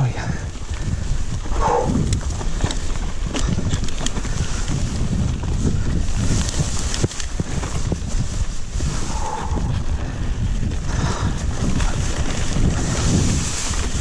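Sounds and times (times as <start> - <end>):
bike clicks and rattles: 0.0 - 14.0
wind buffeting microphone: 0.0 - 14.0.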